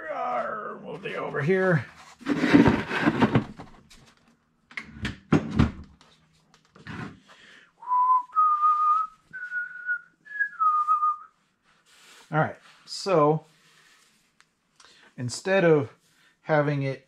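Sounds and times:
handling knocks and rustles: 2.1 - 4.3
person whistling a tune: 7.8 - 11.3.

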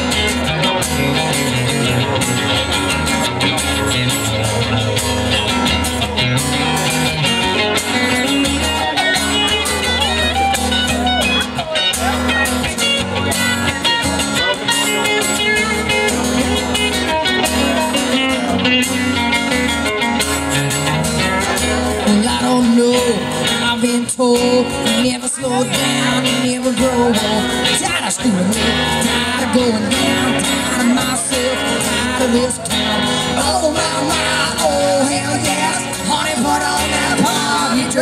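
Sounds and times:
acoustic guitars strumming: 0.0 - 38.0.

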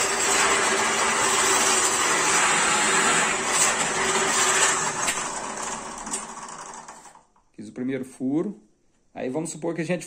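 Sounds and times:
drill bit boring into wood: 0.0 - 7.2
drill press motor hum: 0.0 - 7.3.

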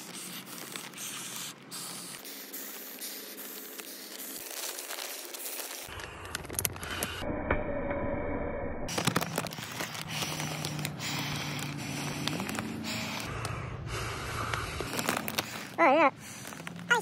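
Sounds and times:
plastic bag crinkling: 0.0 - 2.3, 3.2 - 7.1, 8.9 - 13.3, 14.6 - 17.0
person breathing into plastic bag: 0.0 - 7.2, 8.9 - 17.0.

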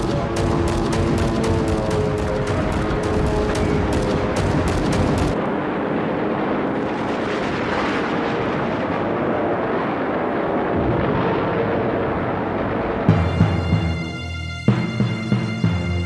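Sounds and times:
warplane engine drone: 0.0 - 16.0.

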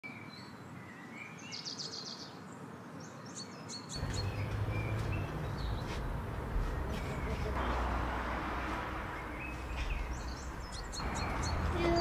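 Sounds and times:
small birds chirping: 0.1 - 8.0, 8.7 - 12.0
high bird trill: 9.2 - 12.0.

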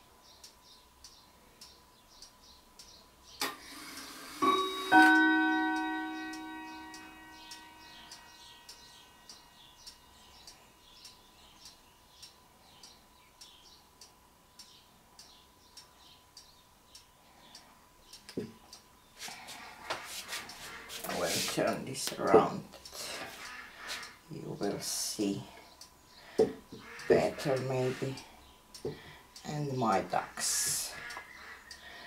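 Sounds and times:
faint steady ticking: 0.0 - 32.0
bell-like ringing: 4.4 - 9.2.

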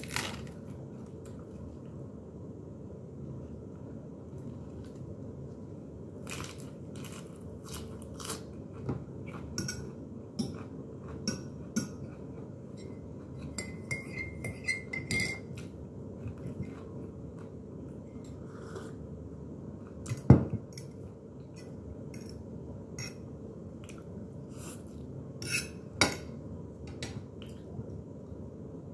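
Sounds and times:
steady low hum: 0.0 - 28.9
fork scraping ceramic plate: 25.4 - 25.8.

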